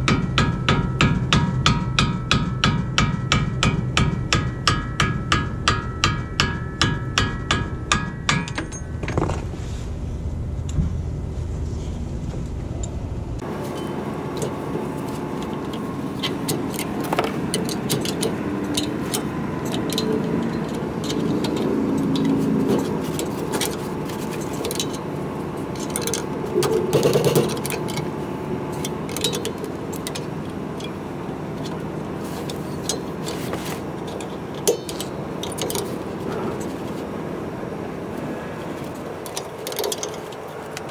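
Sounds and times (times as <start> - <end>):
metallic clinks and scrapes: 13.5 - 28.1.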